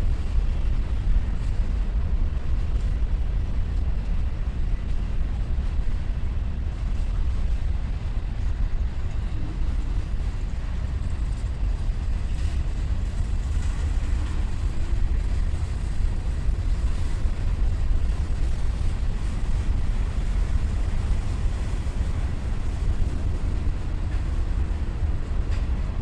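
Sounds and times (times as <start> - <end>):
freight train wheels rumbling: 0.0 - 26.0.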